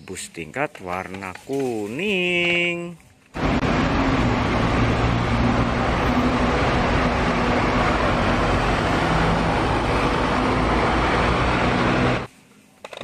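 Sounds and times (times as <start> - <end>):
street noise: 0.0 - 13.0
bus engine humming: 3.4 - 12.3.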